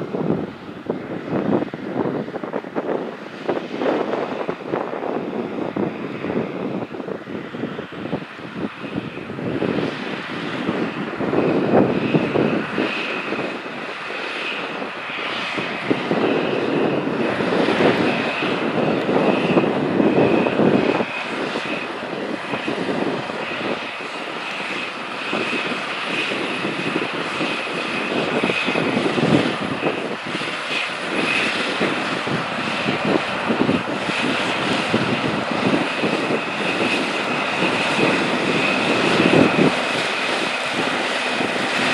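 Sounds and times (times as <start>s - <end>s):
steady high whine: 0.0s - 41.9s.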